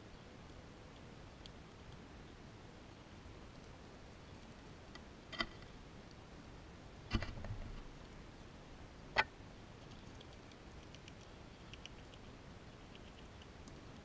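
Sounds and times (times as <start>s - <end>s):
squirrel feeding clicks: 0.9s - 2.0s, 3.4s - 6.2s, 9.8s - 14.0s
squirrel crunching food: 2.9s - 6.2s, 9.6s - 14.0s.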